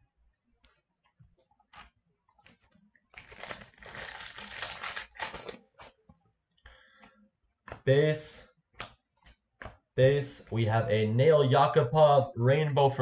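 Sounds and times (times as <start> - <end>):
foil wrapper crinkling and tearing: 3.1 - 6.0
cards tapping: 8.7 - 10.5.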